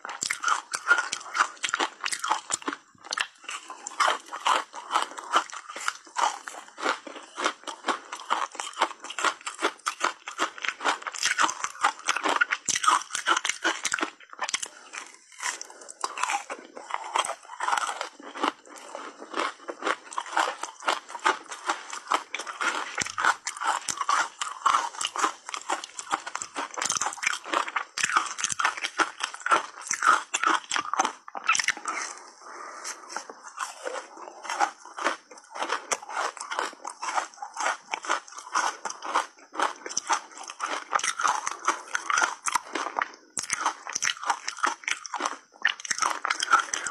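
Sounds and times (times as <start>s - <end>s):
ice crunching between teeth: 0.0s - 46.9s.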